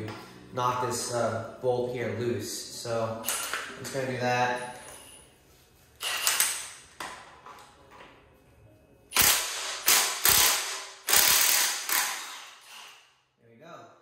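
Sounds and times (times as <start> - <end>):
impact wrench hammering: 9.2 - 13.0.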